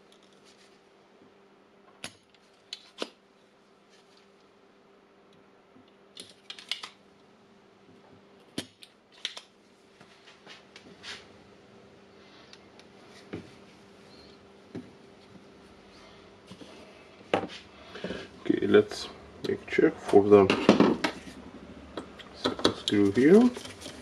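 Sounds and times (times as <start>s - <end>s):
faint steady hum: 0.0s - 24.0s
desoldering pump clicks and snaps: 8.8s - 9.5s.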